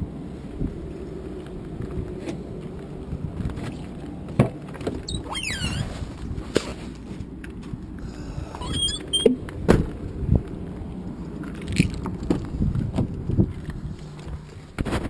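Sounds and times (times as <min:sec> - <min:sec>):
outdoor rumble: 0:00.0 - 0:15.0
car door squeaks: 0:05.1 - 0:06.0, 0:08.4 - 0:09.4.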